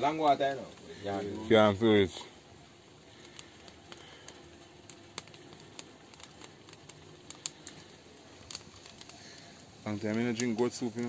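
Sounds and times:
wood fire crackling: 0.0s - 11.0s.

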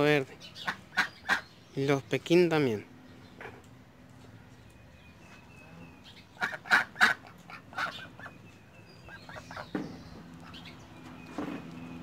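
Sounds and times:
ducks quacking: 0.6s - 1.5s, 6.3s - 8.4s, 9.0s - 9.8s.

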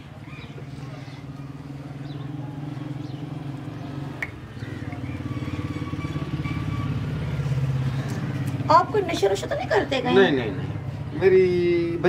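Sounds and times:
engine running with low throb: 0.0s - 9.2s.

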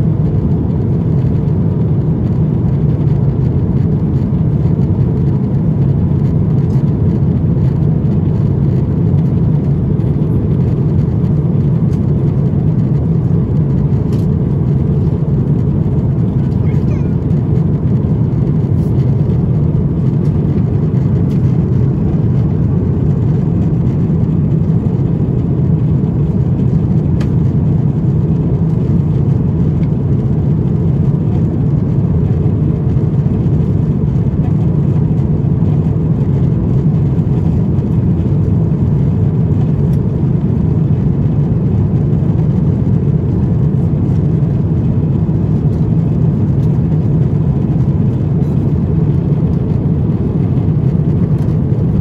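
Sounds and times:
airplane cabin drone: 0.0s - 52.0s.

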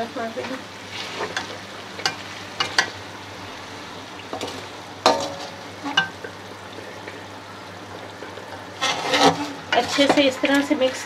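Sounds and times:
oil sizzling: 0.0s - 11.0s
metal spatula scraping a pan: 8.7s - 10.5s.

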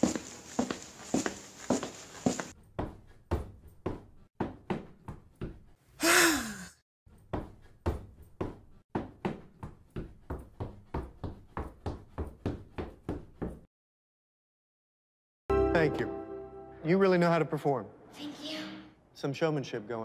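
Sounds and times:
breathy burst: 6.0s - 6.8s.

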